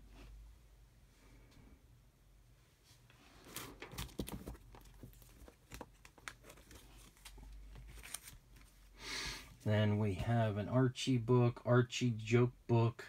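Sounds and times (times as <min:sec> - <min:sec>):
plastic sleeves crinkling: 0:03.4 - 0:08.9.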